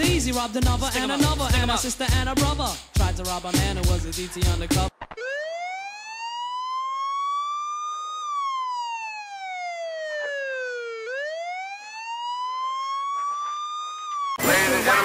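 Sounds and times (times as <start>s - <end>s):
police siren wailing: 5.1s - 15.0s.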